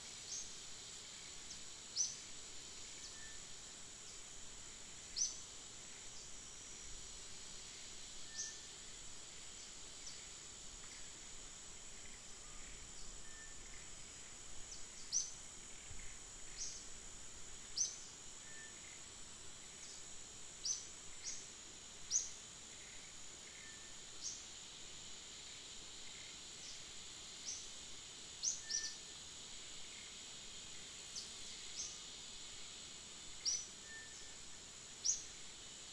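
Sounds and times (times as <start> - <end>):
high insect drone: 0.0 - 35.9.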